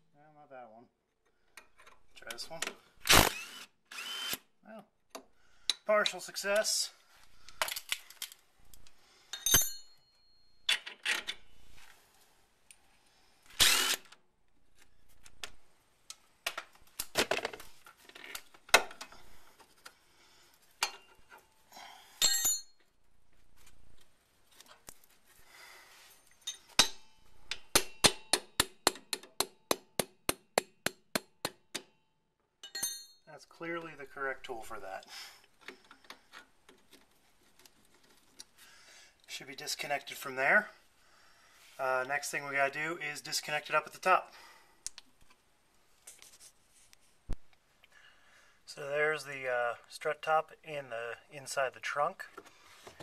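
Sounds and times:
metal tool clinks and scrapes: 9.3 - 11.5, 20.8 - 21.5, 22.2 - 22.8, 26.0 - 27.3, 32.6 - 33.2.

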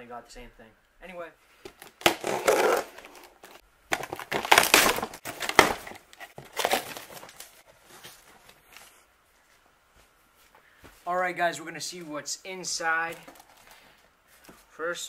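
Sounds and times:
packing material rustling: 1.7 - 9.1.

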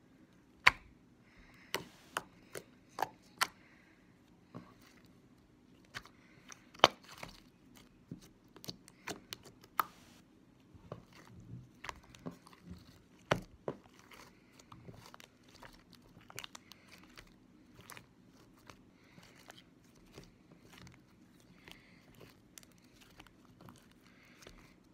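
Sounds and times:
slime snapping: 0.6 - 0.9.

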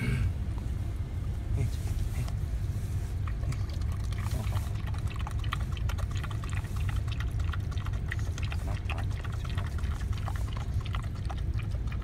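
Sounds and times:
steady low hum: 0.0 - 12.0
dog lapping and slurping: 3.1 - 12.0.

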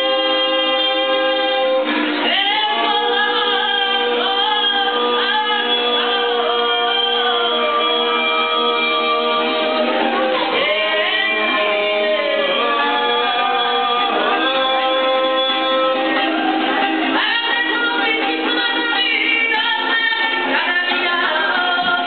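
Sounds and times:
children's choir singing: 0.0 - 22.0
plucked string instrument: 0.0 - 22.0.

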